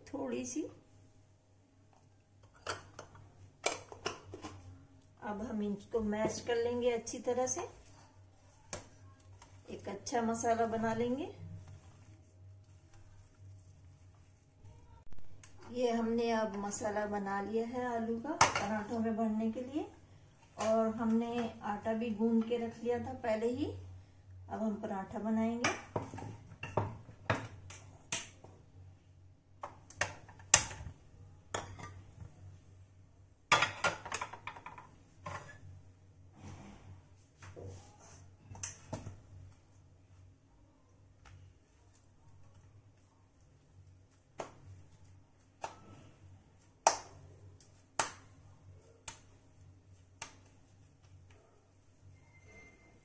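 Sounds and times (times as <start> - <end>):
kitchenware clicks and knocks: 33.5 - 35.5
hands patting dough: 41.1 - 52.0.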